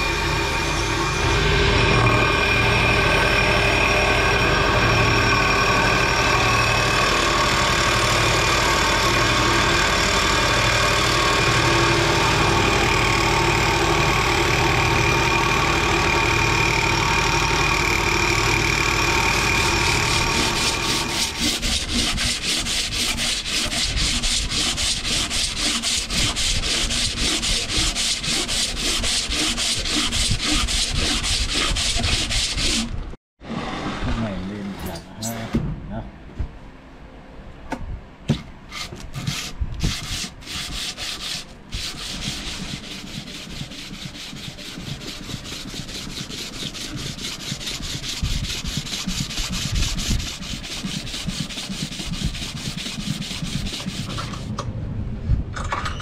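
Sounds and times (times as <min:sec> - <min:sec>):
electric grinding wheel humming: 0:00.0 - 0:34.2
knife blade rubbed on sandpaper: 0:20.1 - 0:32.9, 0:38.7 - 0:54.5.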